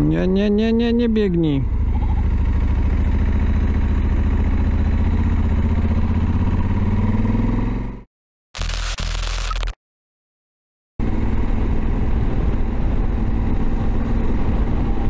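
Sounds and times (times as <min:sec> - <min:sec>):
motorcycle engine running: 0:01.5 - 0:08.0, 0:11.0 - 0:15.0.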